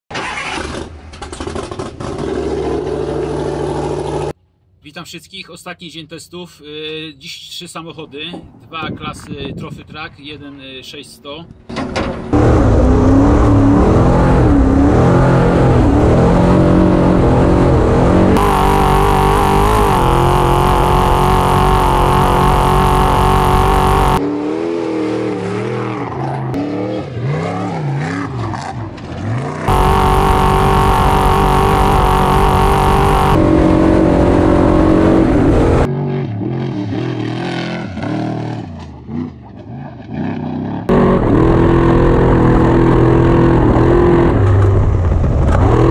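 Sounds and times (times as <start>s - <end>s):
truck engines revving: 12.2s - 45.9s.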